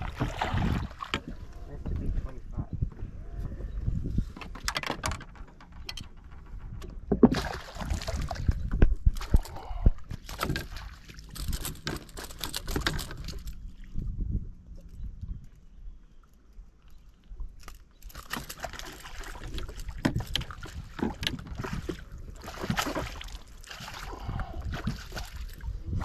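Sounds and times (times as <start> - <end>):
water splashing and sloshing: 0.0 - 2.4, 4.2 - 26.0
knocks and rattles of net: 10.2 - 13.6.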